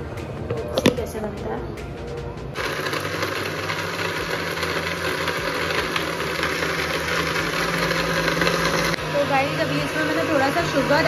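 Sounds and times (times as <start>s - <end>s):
blender motor running: 2.6s - 11.0s.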